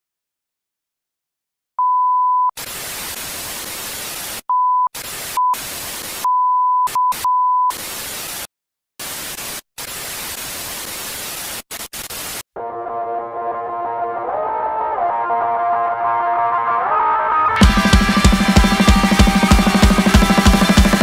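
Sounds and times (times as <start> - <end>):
test-tone beeps: 6.2 - 7.7
television static hiss: 9.0 - 12.4.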